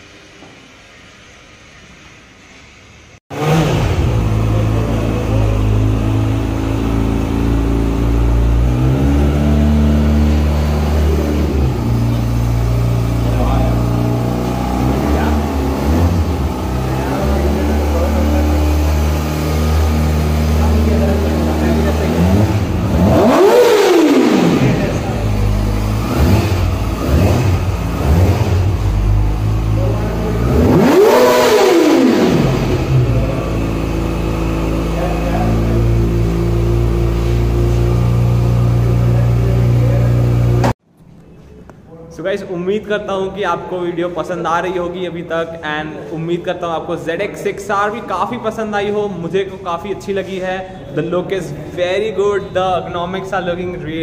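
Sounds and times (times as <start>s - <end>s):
motorcycle engine idling and revving: 3.3s - 40.8s.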